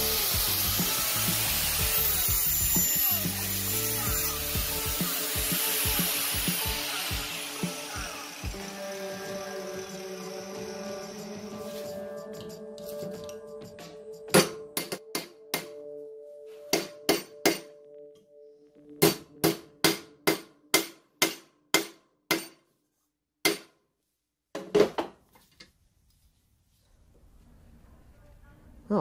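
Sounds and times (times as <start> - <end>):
hammer striking sheet steel: 19.0 - 22.6.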